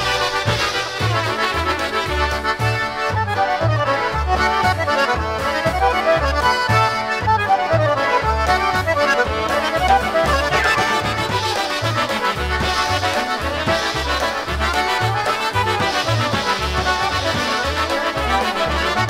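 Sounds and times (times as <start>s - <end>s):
accordion runs: 0.0s - 19.0s
polka band playing: 0.0s - 19.0s.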